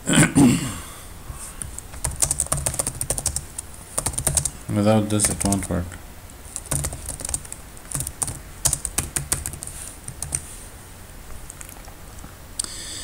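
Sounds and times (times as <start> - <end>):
keyboard typing: 1.6 - 5.8, 6.6 - 10.5.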